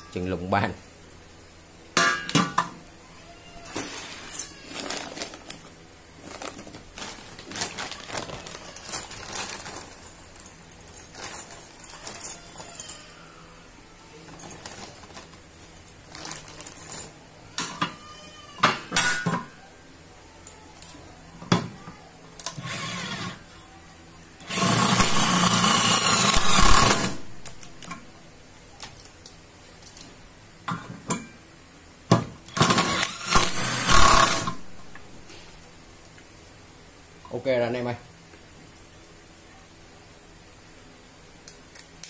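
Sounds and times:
cordless drill driving screw: 0:32.6 - 0:34.6.

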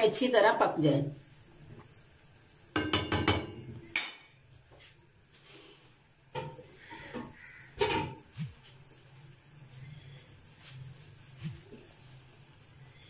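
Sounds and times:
wooden spoon knocking on pot: 0:02.7 - 0:03.7.

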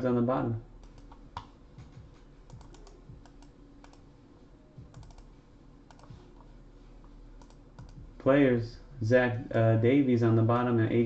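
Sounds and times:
mouse and keyboard clicks: 0:02.5 - 0:04.0, 0:04.9 - 0:05.3, 0:05.9 - 0:06.5, 0:07.4 - 0:08.0.

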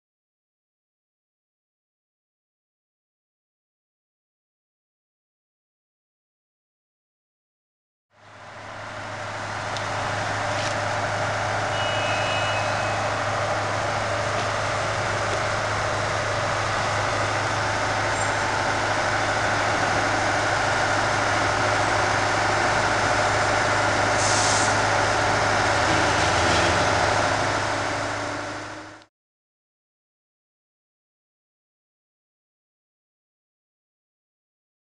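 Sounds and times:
heavy engine running: 0:08.1 - 0:29.1
short hiss: 0:24.2 - 0:24.8.

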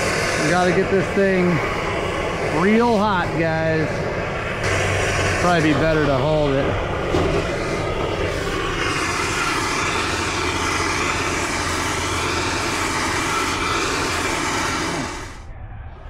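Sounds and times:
gas torch hissing: 0:00.0 - 0:15.5.

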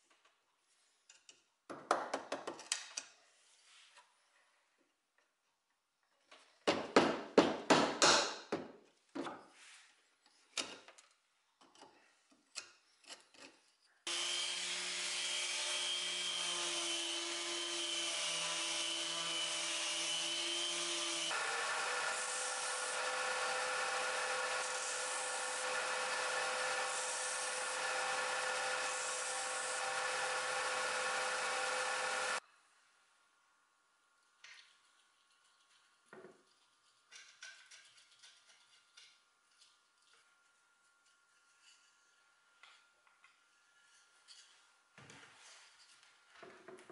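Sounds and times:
disc sander running: 0:14.1 - 0:17.5, 0:21.3 - 0:32.4.

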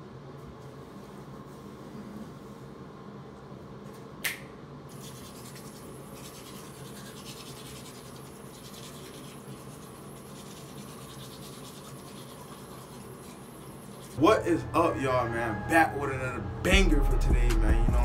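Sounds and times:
toothbrush scrubbing teeth: 0:04.9 - 0:14.2.

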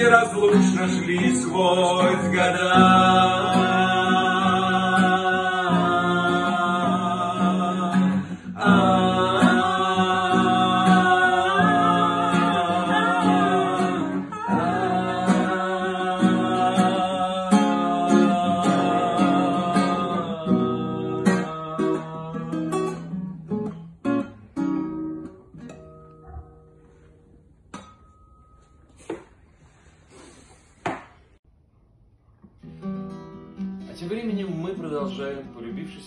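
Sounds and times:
acoustic guitar: 0:00.0 - 0:31.4, 0:32.3 - 0:36.0.

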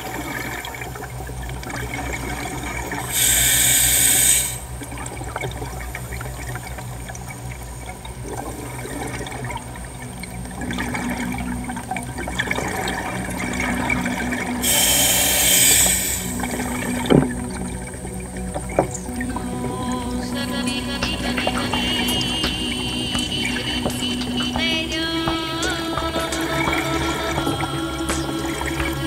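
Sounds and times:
scuba regulator bubbles hissing: 0:00.0 - 0:07.1, 0:08.2 - 0:19.6
low underwater rumble: 0:00.0 - 0:29.0.

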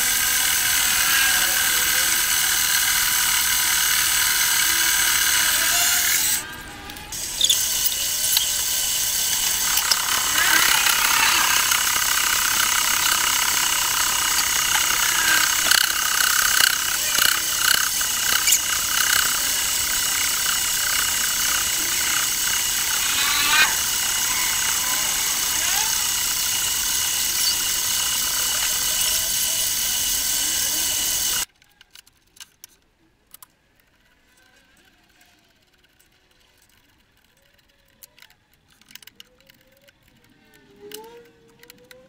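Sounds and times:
lathe whining: 0:00.0 - 0:31.5
cutting tool ticks and squeals: 0:00.0 - 0:32.0.

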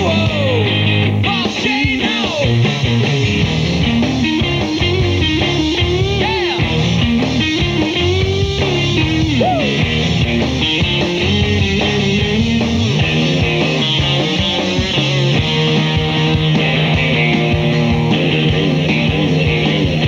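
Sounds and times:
bass and drums: 0:00.0 - 0:20.0
electric guitar lead line: 0:00.0 - 0:20.0.

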